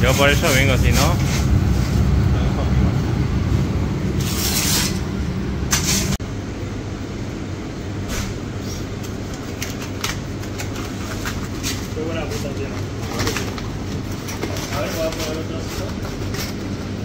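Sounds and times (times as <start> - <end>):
vehicle engine rumbling: 0.0 - 6.2.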